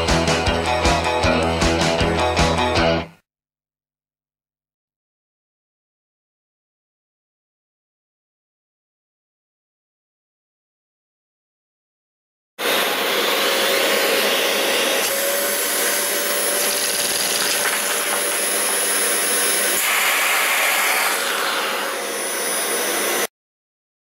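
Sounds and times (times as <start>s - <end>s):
vacuum cleaner running: 12.6s - 23.3s.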